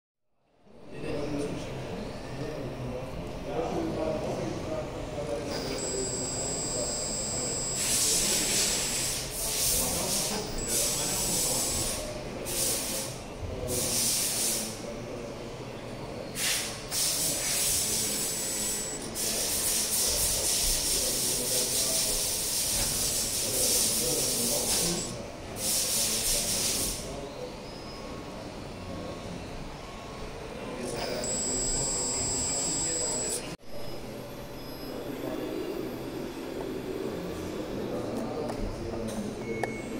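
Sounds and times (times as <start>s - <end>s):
toy forklift motor hiss and whine: 5.6s - 13.1s, 16.4s - 27.1s, 31.1s - 33.4s.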